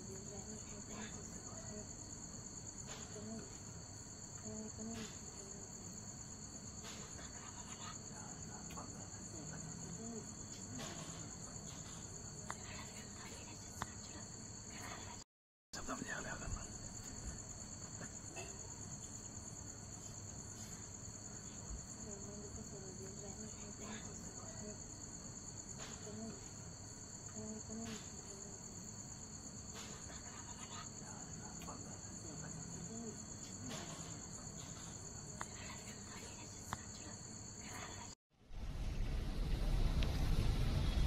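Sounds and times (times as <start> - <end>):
crickets chirring: 0.0 - 15.2, 15.8 - 41.0.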